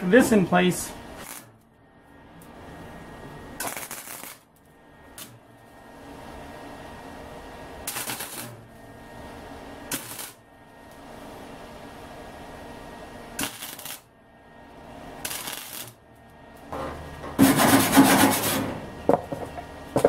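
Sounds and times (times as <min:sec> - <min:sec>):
welding arc bursts: 0:00.0 - 0:01.5, 0:03.6 - 0:04.5, 0:07.8 - 0:08.6, 0:09.9 - 0:10.4, 0:13.4 - 0:14.1, 0:15.2 - 0:16.0
welder hum: 0:00.0 - 0:20.0.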